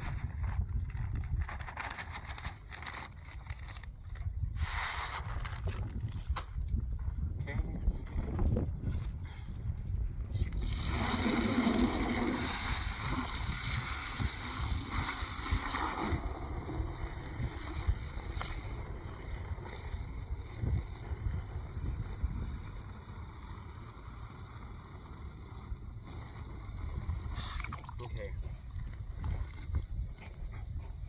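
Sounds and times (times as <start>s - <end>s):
wind rumble on microphone: 0.0s - 31.0s
hose water splashing into bucket: 10.3s - 22.5s, 23.3s - 28.4s.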